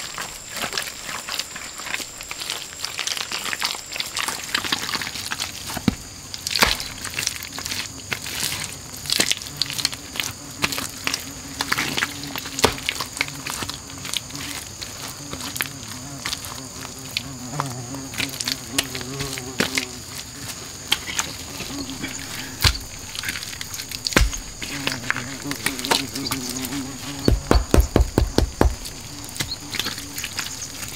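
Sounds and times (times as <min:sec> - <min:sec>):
buzzing insect droning: 0:00.0 - 0:30.9
high insect chorus: 0:00.0 - 0:30.9
wet mud squelching and patting: 0:21.6 - 0:30.9.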